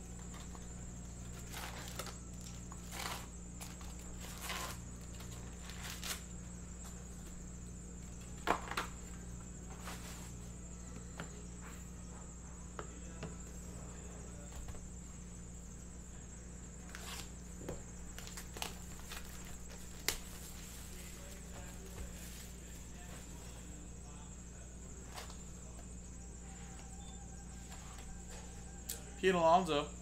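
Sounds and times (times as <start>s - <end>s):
steady low hum: 0.0s - 30.0s
foil packs crinkling: 0.2s - 6.4s, 18.1s - 22.6s.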